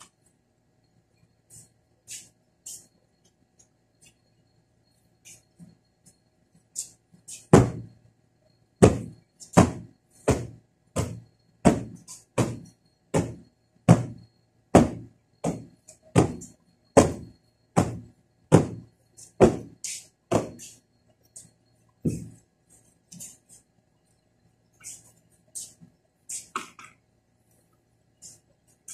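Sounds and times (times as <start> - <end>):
cushion being beaten: 7.5 - 7.9, 8.8 - 20.6.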